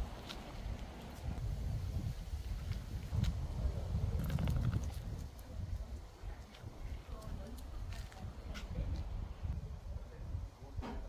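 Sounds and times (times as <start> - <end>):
footsteps on gravel path: 0.0 - 1.4, 6.4 - 9.0.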